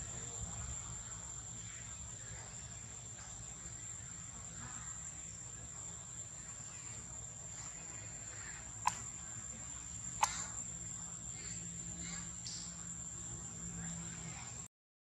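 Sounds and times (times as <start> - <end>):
insects droning: 0.0 - 14.7
sharp click: 8.8 - 9.1, 10.2 - 10.5.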